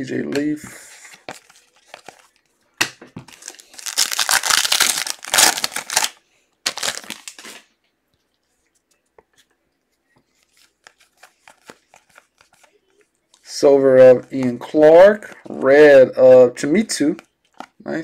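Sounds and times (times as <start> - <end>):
foil wrapper tearing and crinkling: 3.3 - 7.6.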